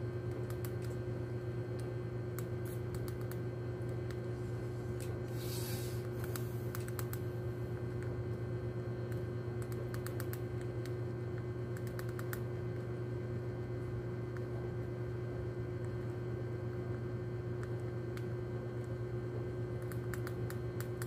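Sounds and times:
steady low hum: 0.0s - 21.0s
rat chewing crunchy bait: 6.0s - 8.1s.

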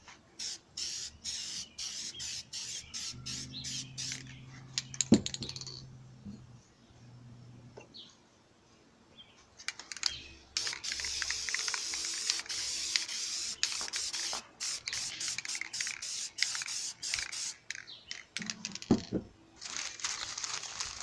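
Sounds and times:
spray paint can hissing: 0.4s - 5.8s, 9.7s - 17.8s
spray can clicks: 9.7s - 18.9s.

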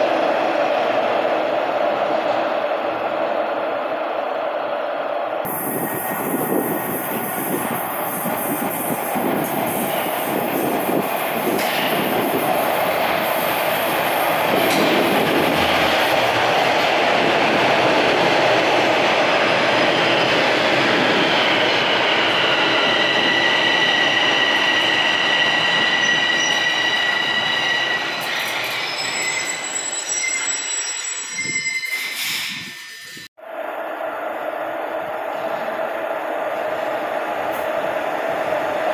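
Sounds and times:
train wheels rumbling on rail: 5.4s - 29.7s
high-pitched brake squealing: 22.1s - 33.3s.

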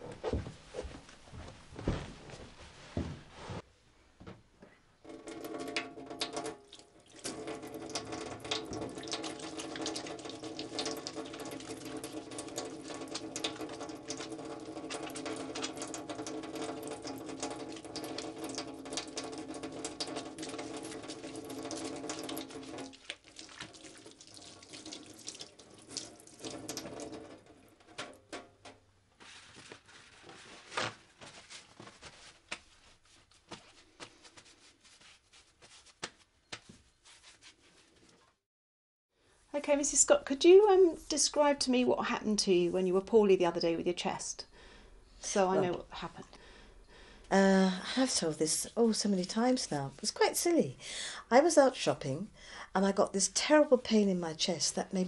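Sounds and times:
hands washing under water: 5.0s - 28.5s, 29.2s - 38.1s
tap water running into sink: 5.0s - 28.8s
paper towel rustling: 29.1s - 38.4s.

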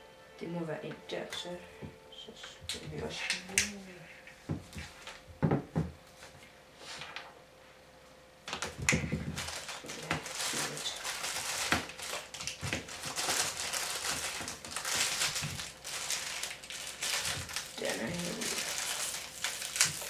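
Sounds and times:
plastic packaging crinkling: 8.5s - 20.0s.

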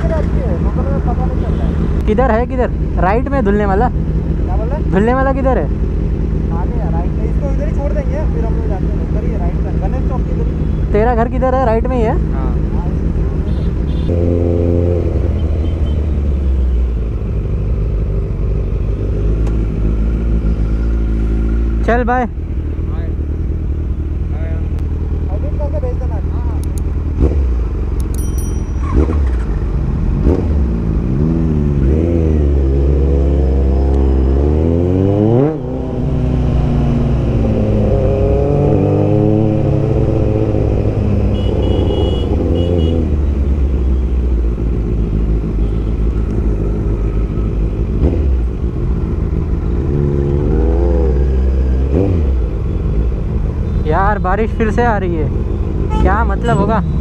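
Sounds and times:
motorcycle engine accelerating: 12.1s - 53.6s.

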